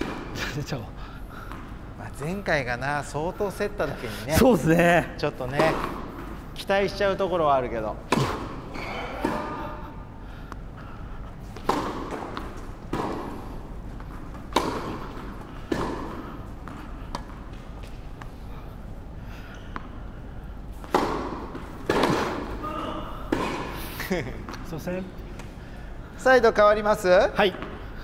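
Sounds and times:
tennis ball pops echoing: 14.5 - 16.2, 20.8 - 22.5.

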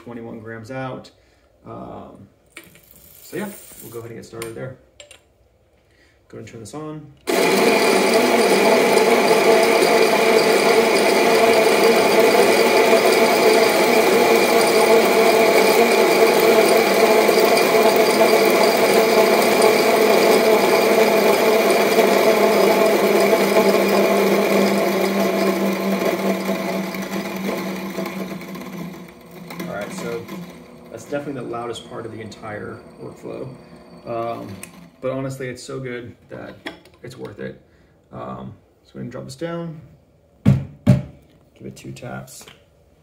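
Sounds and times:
coffee grinder grinding: 2.6 - 4.0, 7.3 - 35.4.

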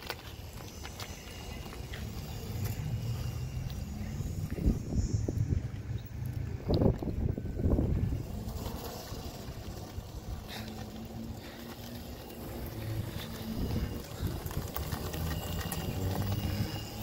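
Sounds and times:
electric motor hum: 0.0 - 17.0
tyres rumbling on asphalt: 0.0 - 17.0.

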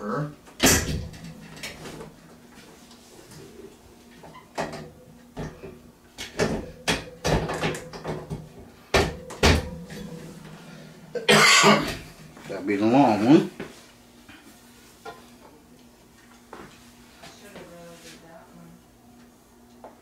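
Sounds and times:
faint steady hum: 0.0 - 20.0
metal shelving knocks and clacks: 0.6 - 2.2, 6.2 - 10.7.

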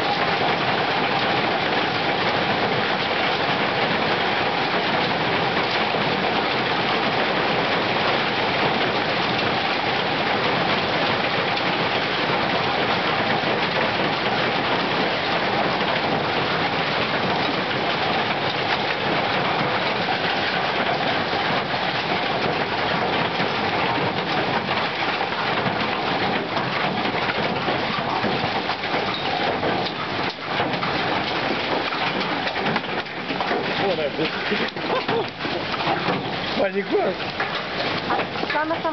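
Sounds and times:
hail and rain pelting: 0.0 - 38.9
sharp hail ticks: 0.0 - 38.9.

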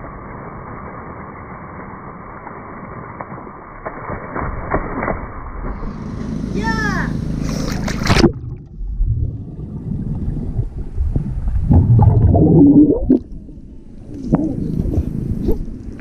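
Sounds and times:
splash: 0.0 - 6.3, 7.4 - 13.3
muffled underwater bubbles gurgling: 7.8 - 15.6.

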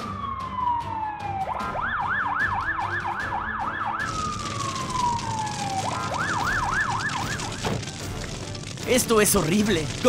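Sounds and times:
ambulance siren: 0.0 - 8.0.

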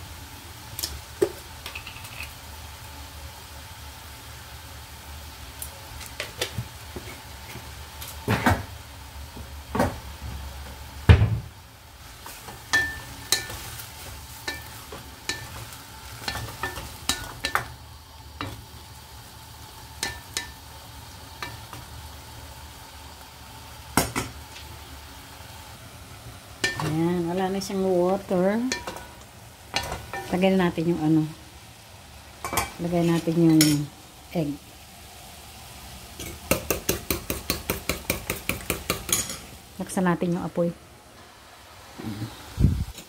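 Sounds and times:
food sizzling: 0.0 - 43.0
spatula scraping a pan: 12.2 - 17.4.

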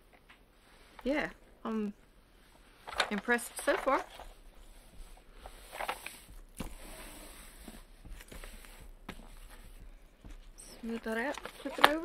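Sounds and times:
paper and plastic film rustling: 10.5 - 12.0.

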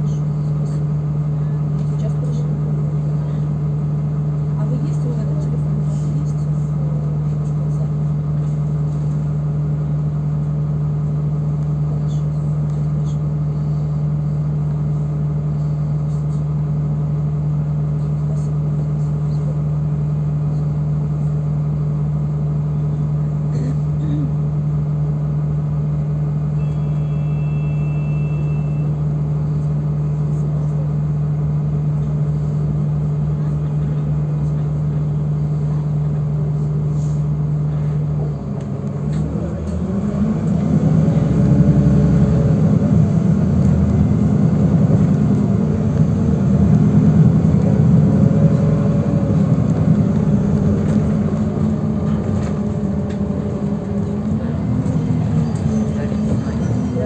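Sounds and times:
bus engine drone: 0.0 - 57.0
faint short high beep: 26.6 - 29.0.

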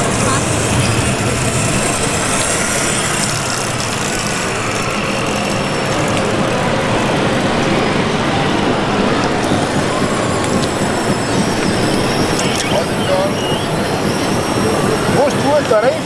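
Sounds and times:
exhibition hall crowd hubbub: 0.0 - 16.0
model truck engine running: 0.0 - 16.0.

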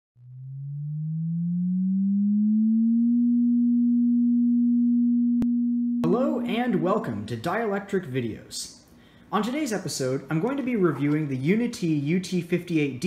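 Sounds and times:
electronic tone rising in pitch: 0.2 - 6.1.

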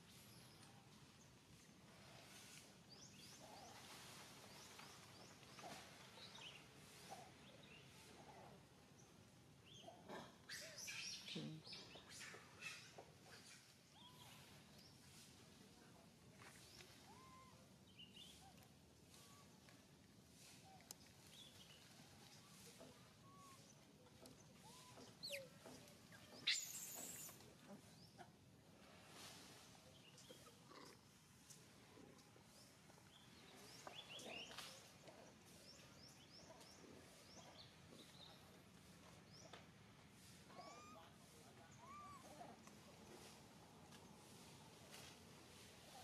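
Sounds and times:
faint outdoor ambience: 0.0 - 46.0
distant bird calls: 20.4 - 28.2
high rising animal chirps: 26.4 - 27.4.

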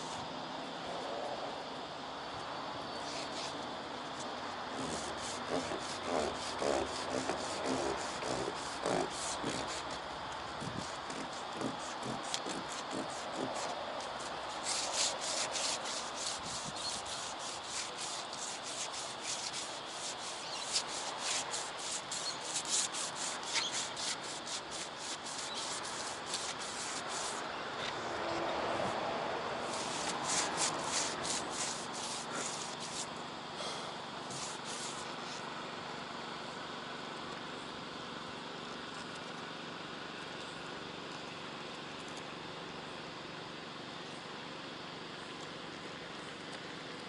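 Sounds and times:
sandpaper rubbing on metal: 3.1 - 3.6, 4.8 - 10.1, 10.7 - 27.4, 29.6 - 33.1, 34.3 - 35.4.

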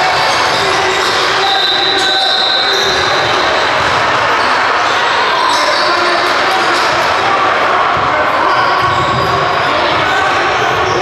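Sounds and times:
voices echoing in gym: 0.0 - 11.0.

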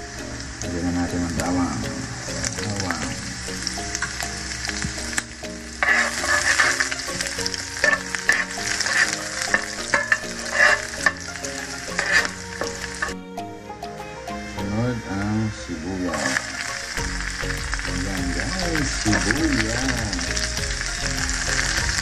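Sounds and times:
meat and garlic sizzling in oil: 0.0 - 13.2, 16.1 - 22.0
spoon scraping a frying pan: 5.7 - 13.2.

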